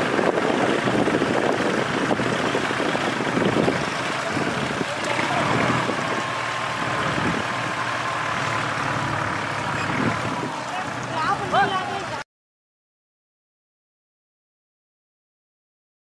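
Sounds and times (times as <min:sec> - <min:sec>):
tractor diesel engines labouring: 0:00.0 - 0:12.2.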